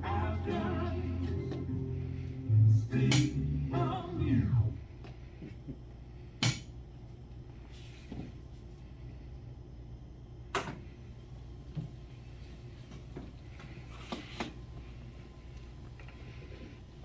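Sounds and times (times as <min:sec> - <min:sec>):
music with singing: 0:00.0 - 0:04.9.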